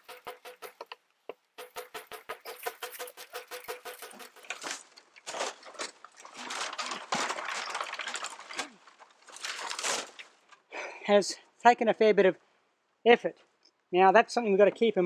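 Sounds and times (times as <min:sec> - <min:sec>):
stone chopper striking bamboo: 0:00.0 - 0:01.0, 0:01.6 - 0:04.7
rustling and scraping: 0:00.0 - 0:10.7.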